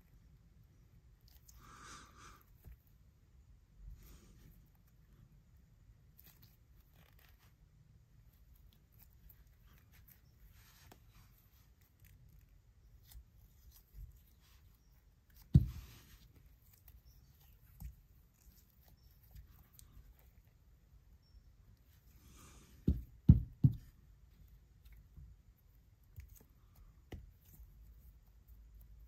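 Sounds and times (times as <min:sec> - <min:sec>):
rubbery rustling and crackling: 0:06.1 - 0:07.7.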